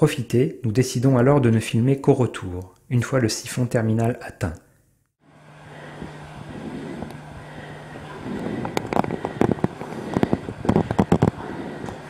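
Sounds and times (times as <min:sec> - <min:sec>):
low hum: 0:05.2 - 0:12.0
sharp crackles and clicks: 0:08.4 - 0:12.0.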